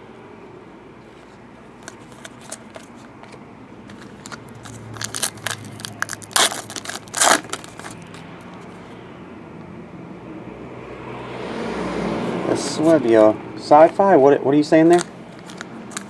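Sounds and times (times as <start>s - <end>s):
foil wrapper crinkling: 1.8s - 8.2s, 14.9s - 16.0s
foil wrapper ripping: 3.9s - 8.2s, 14.9s - 16.0s.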